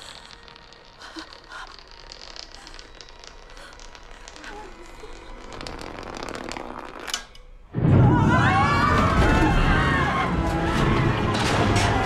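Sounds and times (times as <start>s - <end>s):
small crackling clicks: 0.0s - 7.5s.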